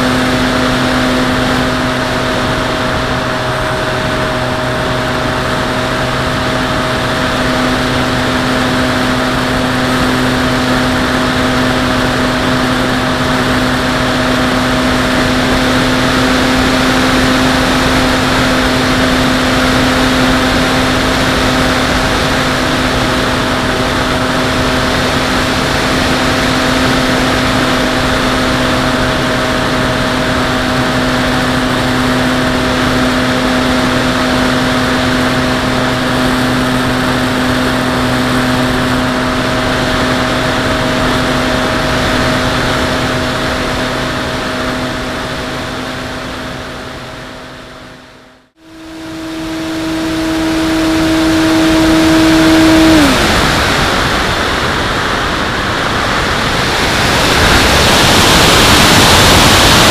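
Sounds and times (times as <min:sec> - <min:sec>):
model plane motor humming: 0:00.0 - 0:47.8, 0:48.6 - 0:59.9.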